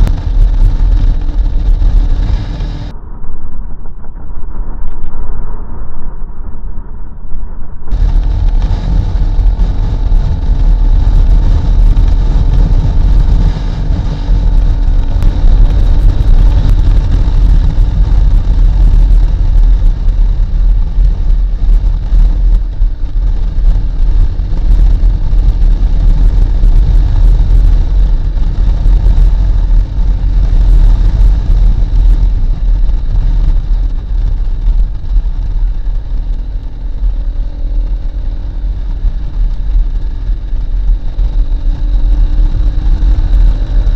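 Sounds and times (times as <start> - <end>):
motorcycle engine running: 0.0 - 2.9, 7.9 - 43.9
wind rushing over microphone: 0.0 - 43.9.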